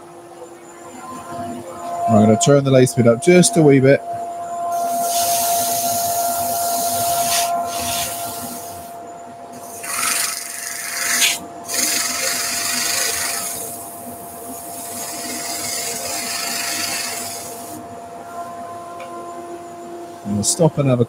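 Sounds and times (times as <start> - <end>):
steady high hum: 0.0 - 21.0
sander hissing against wood: 4.8 - 8.9, 9.6 - 13.9, 14.7 - 17.8.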